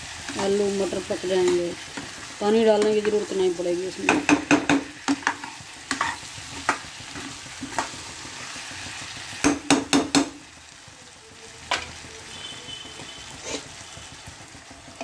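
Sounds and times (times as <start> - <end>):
vegetables sizzling: 0.0 - 15.0
ladle knocking on pan: 4.0 - 6.1, 9.4 - 10.4
ladle clinking and scraping pan: 5.1 - 6.3.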